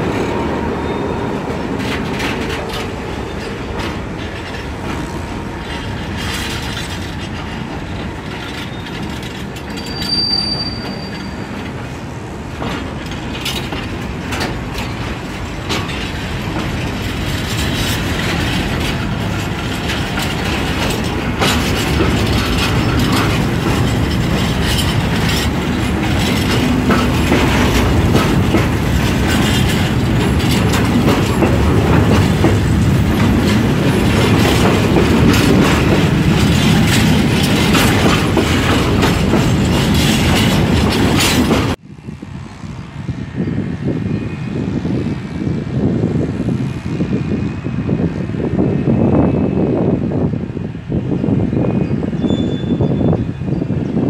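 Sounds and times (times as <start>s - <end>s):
train wheels clattering over rail joints: 0.0s - 41.8s
high wheel squeal: 8.4s - 11.7s, 51.7s - 53.7s.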